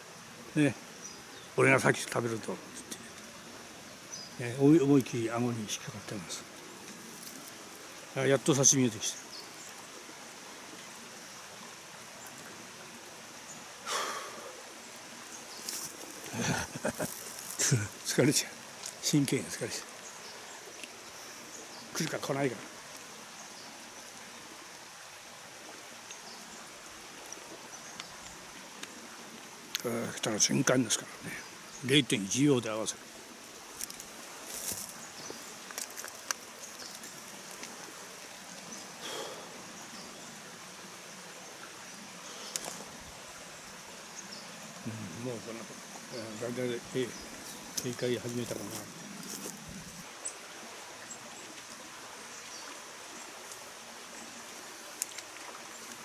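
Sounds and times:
rustle: 0:00.0 - 0:56.0
stream water running: 0:00.0 - 0:56.0
light clicks and rustles: 0:42.4 - 0:43.0.

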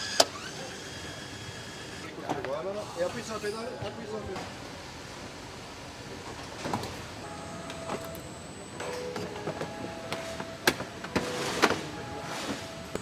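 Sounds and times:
steady factory hum: 0:00.0 - 0:13.0
short machine tones: 0:07.2 - 0:13.0.

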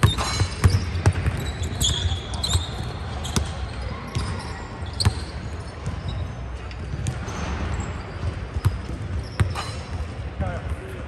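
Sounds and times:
basketballs bouncing on wooden floor: 0:00.0 - 0:06.2, 0:08.2 - 0:10.1
short high squeaks: 0:07.3 - 0:09.9.

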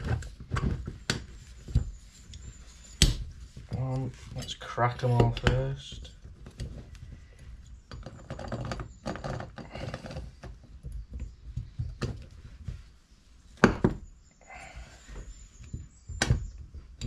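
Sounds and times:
small metal clicks and knocks: 0:03.7 - 0:12.3.

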